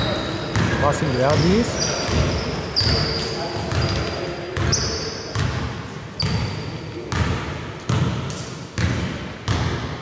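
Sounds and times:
shoe squeak: 0.0 - 5.4, 6.2 - 6.8
basketball bouncing echoing: 0.0 - 10.0.

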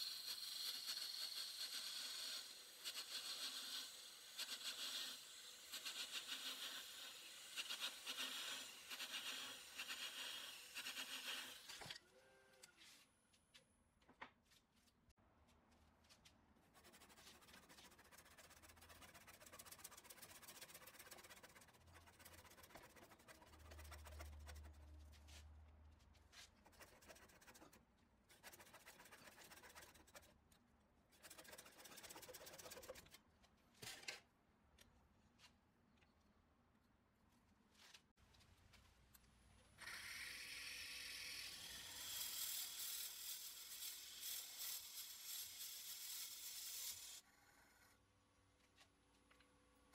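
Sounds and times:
lathe tool scraping wood: 0.0 - 11.8.

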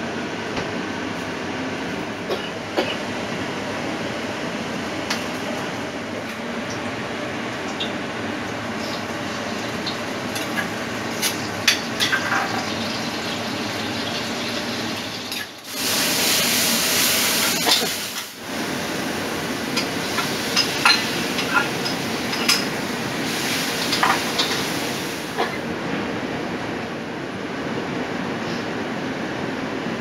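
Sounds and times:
seafood sizzling in a wok: 8.6 - 25.4.

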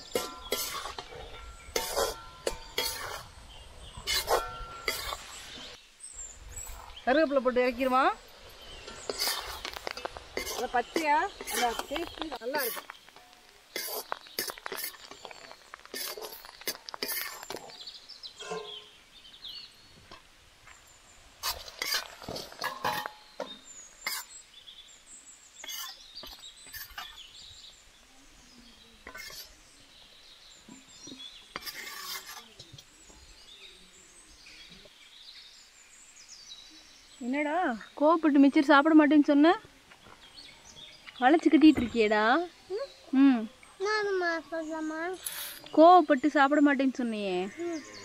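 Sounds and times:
metal utensils clinking on cookware: 0.0 - 3.4, 4.0 - 5.3, 8.7 - 17.6, 18.4 - 18.9, 21.4 - 24.3, 29.1 - 29.5
birds chirping faintly: 0.0 - 48.0.

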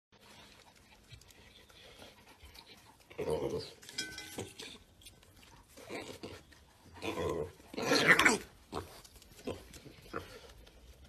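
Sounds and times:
piglet chewing and snuffling: 0.1 - 11.0
piglet grunting: 5.8 - 10.6.

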